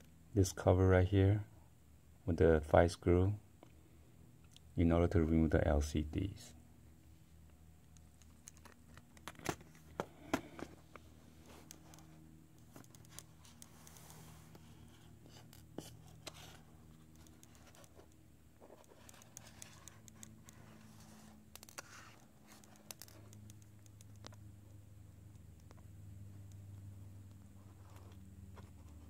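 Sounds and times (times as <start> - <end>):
low steady hum: 0.0 - 29.0
hands handling a phone: 8.0 - 24.4.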